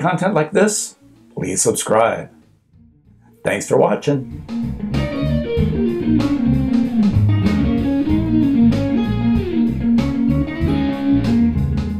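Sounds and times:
guitar-led tune with beat: 4.2 - 11.9.

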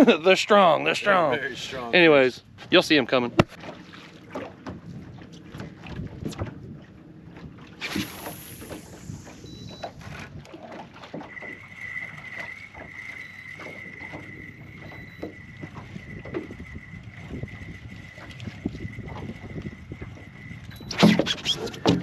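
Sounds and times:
water lapping against hull: 0.0 - 22.0
wind on microphone: 4.7 - 10.7, 11.3 - 22.0
brief high hiss: 7.8 - 9.4
steady high whine: 7.8 - 10.0, 11.2 - 21.3.

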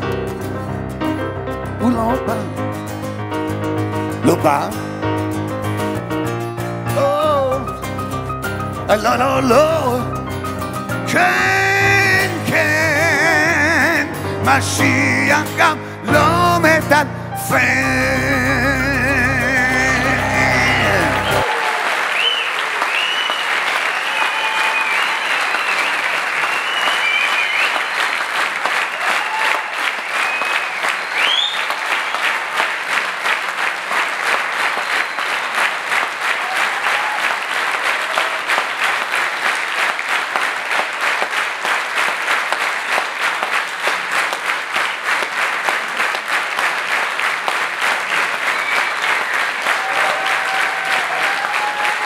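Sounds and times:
audience applauding: 14.8 - 52.0
cheering voices: 19.1 - 52.0
high whistles: 22.2 - 28.1, 30.2 - 31.8, 48.5 - 49.6.

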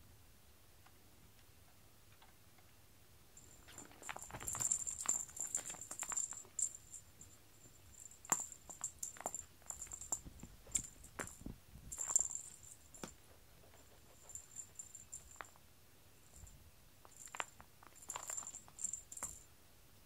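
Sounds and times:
cat teaser rustling on mats: 3.4 - 7.0, 7.6 - 15.6.

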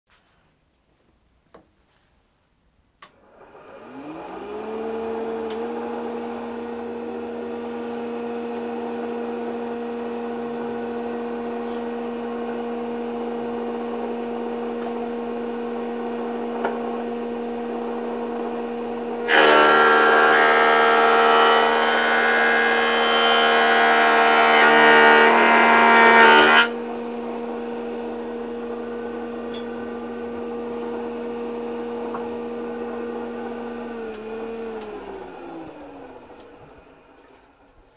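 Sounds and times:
planer cutting board: 19.2 - 26.8
planer motor humming: 19.2 - 29.2.

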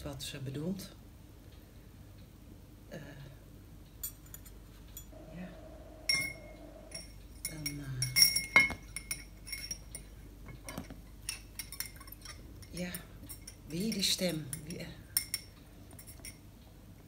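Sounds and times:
glass ringing: 5.8 - 10.1
cutlery and glassware clinking: 6.1 - 16.4.

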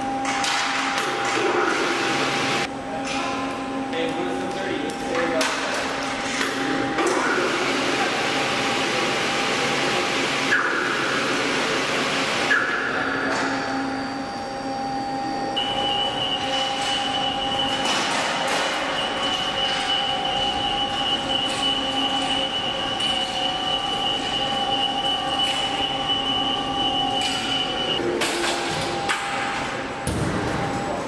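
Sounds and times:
machine hum: 0.0 - 31.0
hoist motor whine: 6.5 - 29.6.

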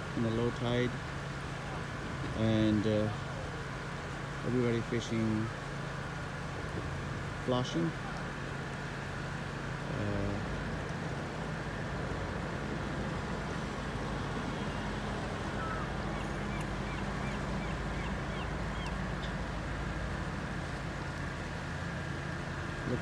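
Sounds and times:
road traffic hum: 0.0 - 23.0
faint bird chirps: 15.5 - 19.4.

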